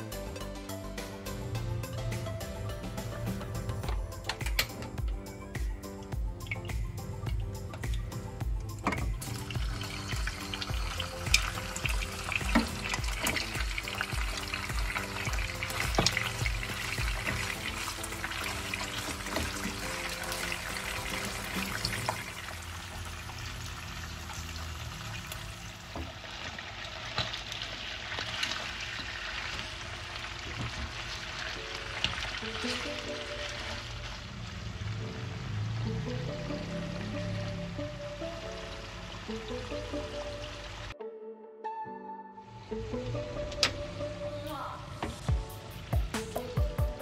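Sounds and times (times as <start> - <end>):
background music: 0.0 - 25.6, 28.4 - 47.0
fish sizzling in oil: 6.3 - 37.1.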